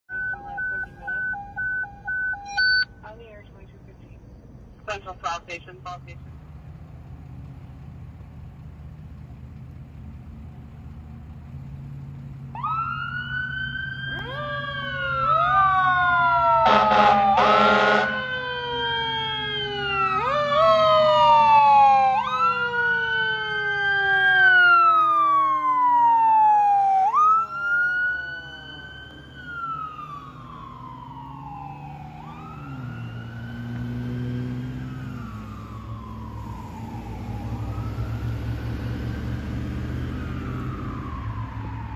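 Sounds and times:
fire engine siren wailing: 0.1s - 3.2s, 11.4s - 41.9s
low engine rumble: 0.1s - 16.6s, 18.1s - 41.9s
air horn blasts: 16.6s - 18.2s.

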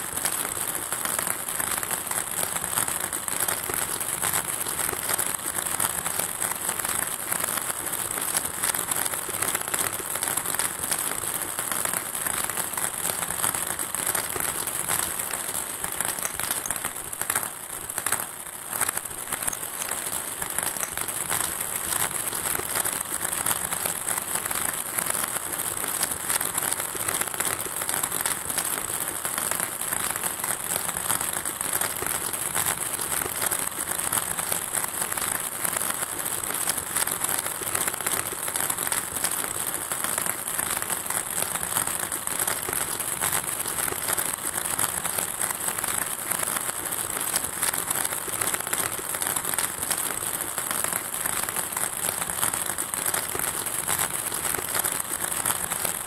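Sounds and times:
ping pong balls bouncing on tile: 0.1s - 56.0s.

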